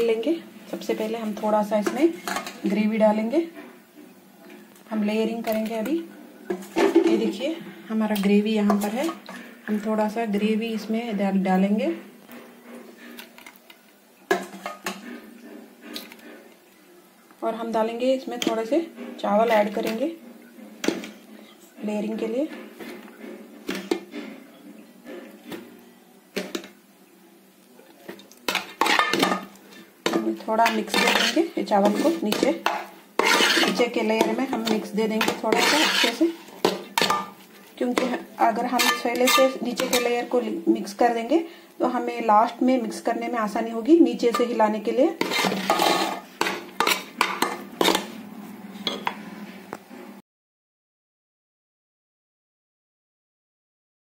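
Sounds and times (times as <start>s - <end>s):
metal spoon scraping a pot: 14.3s - 16.6s, 28.5s - 41.0s, 44.1s - 48.2s.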